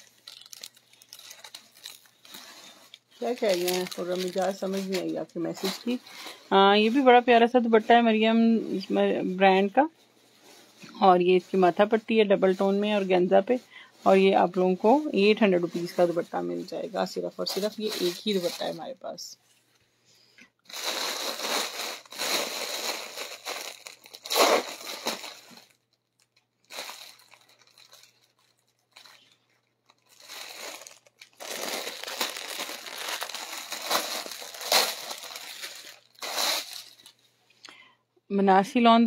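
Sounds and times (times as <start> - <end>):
plastic bags and fabric rustling: 0.0 - 19.4, 20.6 - 37.3.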